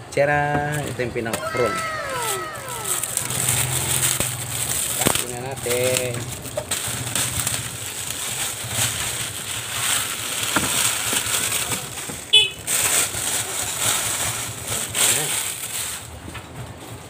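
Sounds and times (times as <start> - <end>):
plastic wrapping crinkling: 0.8 - 16.2.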